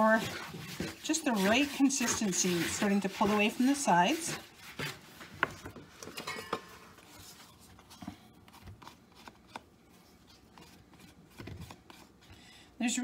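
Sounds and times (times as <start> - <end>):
spoon scraping mixing bowl: 0.0 - 7.5.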